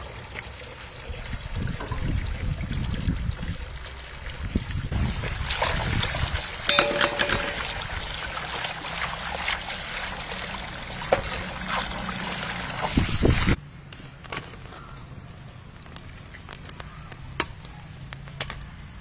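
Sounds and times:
water running from a hose: 0.0 - 13.6.

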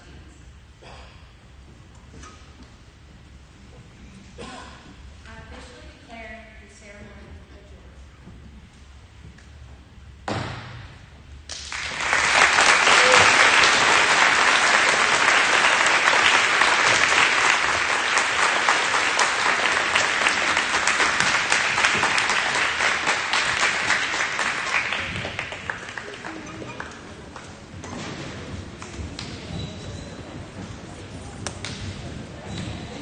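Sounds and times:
audience applauding: 11.5 - 27.8.

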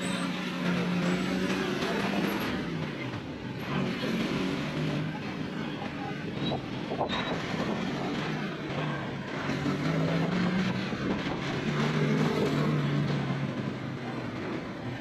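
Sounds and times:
road and wind noise: 0.0 - 15.0
vehicle engines humming: 0.0 - 15.0.

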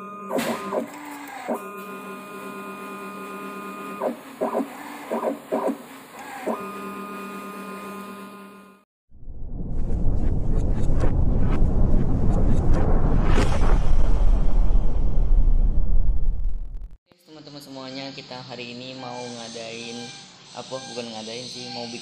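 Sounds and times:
pump humming and whining: 0.0 - 8.8.

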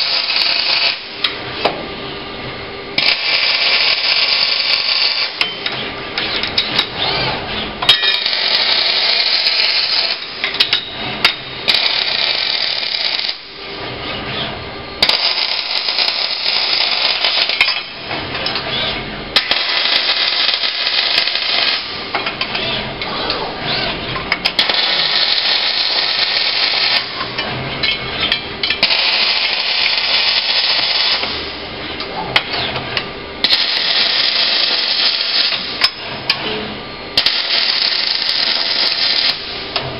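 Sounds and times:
welding arc crackling: 0.0 - 1.2, 3.0 - 5.4, 8.1 - 10.5, 11.6 - 13.6, 15.0 - 17.7, 19.4 - 22.2, 24.5 - 27.2, 28.6 - 31.6, 33.4 - 35.8, 37.2 - 39.7.

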